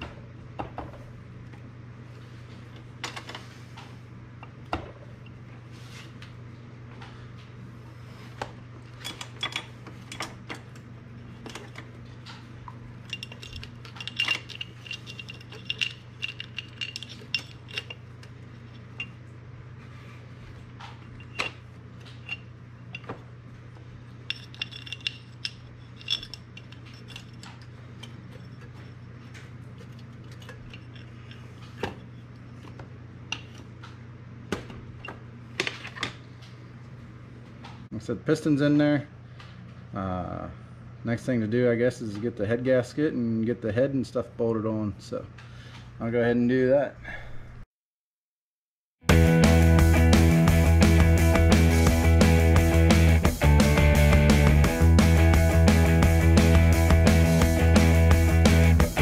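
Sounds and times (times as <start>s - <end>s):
steady low hum: 0.0s - 47.7s.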